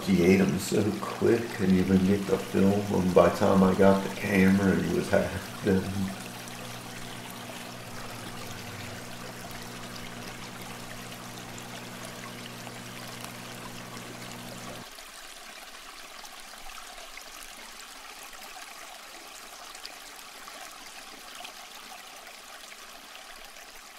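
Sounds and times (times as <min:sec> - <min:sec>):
low electrical hum: 0:00.0 - 0:14.9
aquarium water trickling: 0:00.0 - 0:23.9.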